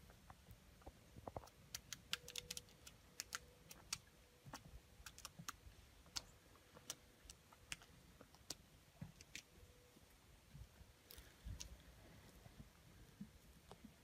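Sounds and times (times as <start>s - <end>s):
faint irregular clicks and ticks: 0.0s - 9.5s, 11.0s - 14.0s.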